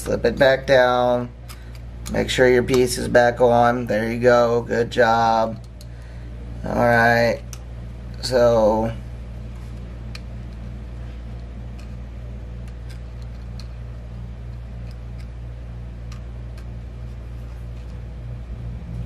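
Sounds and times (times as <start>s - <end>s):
steady low hum: 0.0s - 19.0s
small metal parts clicking: 12.6s - 15.4s.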